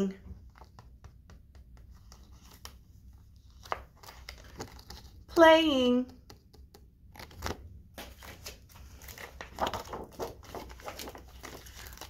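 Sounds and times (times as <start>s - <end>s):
laminated paper crinkling: 2.0s - 5.4s, 7.1s - 12.0s.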